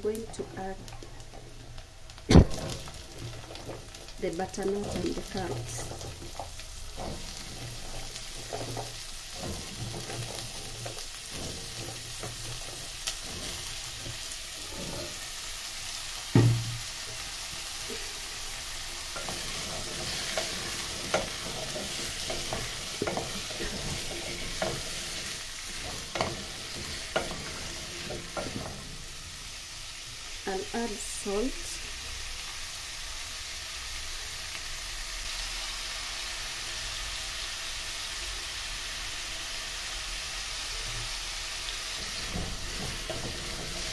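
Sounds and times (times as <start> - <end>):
onions sizzling in hot oil: 0.0 - 43.9
knocks and clatters: 0.3 - 15.2, 16.3 - 16.8, 19.1 - 29.2, 42.0 - 43.9
loud thump: 2.3 - 2.9, 16.3 - 16.8
wooden spoon stirring in a pot: 2.6 - 31.0, 41.0 - 43.9.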